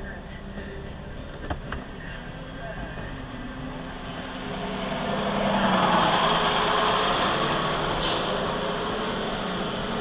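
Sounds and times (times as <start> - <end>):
truck engine running: 0.0 - 10.0
air brake hiss: 8.0 - 8.5.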